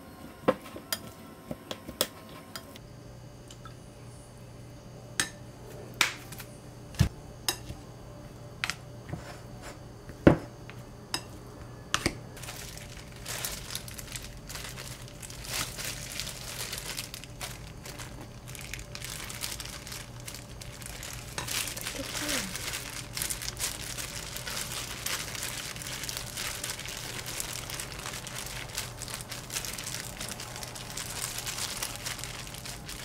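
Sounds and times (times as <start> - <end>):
plastic gloves crinkling: 12.4 - 33.0.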